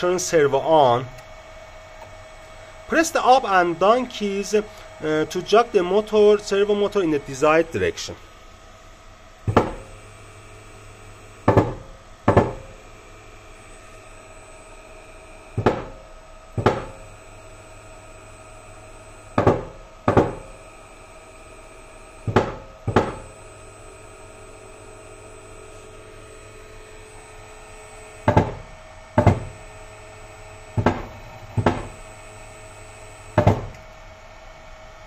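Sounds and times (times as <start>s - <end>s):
electrical hum: 0.0s - 35.0s
servo motor knocks: 9.4s - 10.0s, 11.4s - 12.8s, 15.6s - 16.0s, 16.6s - 17.1s, 19.3s - 20.6s, 22.2s - 23.3s, 28.2s - 29.7s, 30.6s - 32.2s, 33.3s - 33.9s.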